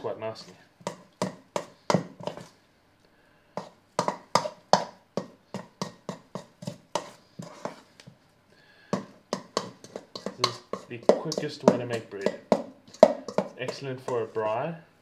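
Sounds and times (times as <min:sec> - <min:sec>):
spoon scraping metal bowl: 0:00.3 - 0:02.5, 0:03.6 - 0:04.9, 0:05.5 - 0:07.9, 0:09.3 - 0:14.4.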